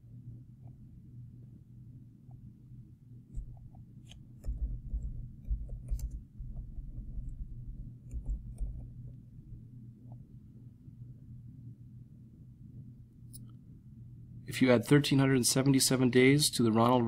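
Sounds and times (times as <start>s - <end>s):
steady low hum: 0.0s - 17.0s
mouse clicks: 3.3s - 7.3s, 8.0s - 9.2s
keyboard keystrokes: 3.4s - 9.2s.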